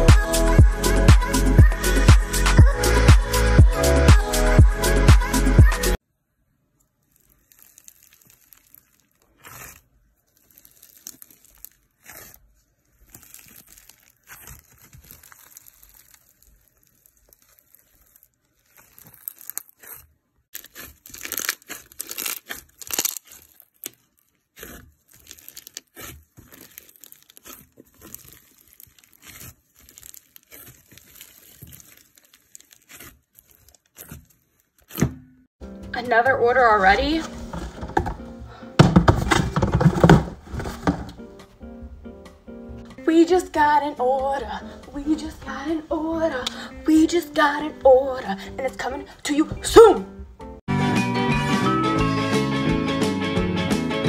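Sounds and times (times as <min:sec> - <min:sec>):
squishing beaded slime: 0:06.4 - 0:35.1.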